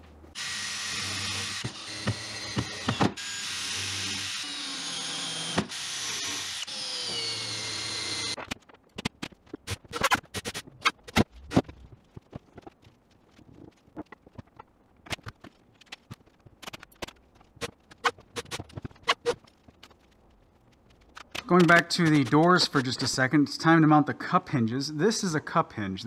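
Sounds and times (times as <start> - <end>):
cordless drill driving screws: 0.4 - 8.4.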